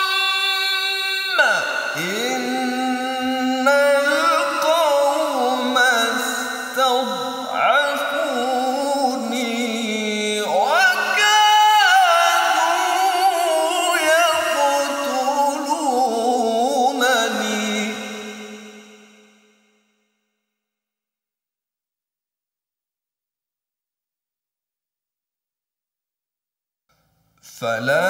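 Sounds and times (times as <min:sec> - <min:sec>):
man reciting melodically: 0:00.0 - 0:19.0, 0:27.4 - 0:28.0.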